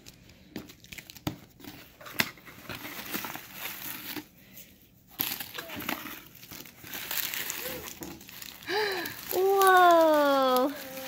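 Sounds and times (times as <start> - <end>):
paper shred rustling: 5.2 - 11.0.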